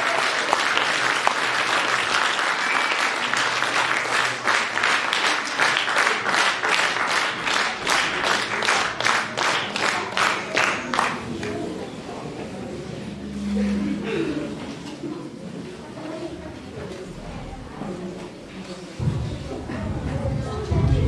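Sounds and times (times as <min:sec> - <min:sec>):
audience applause: 0:00.0 - 0:11.6
rhythmic clapping in unison: 0:00.0 - 0:11.6.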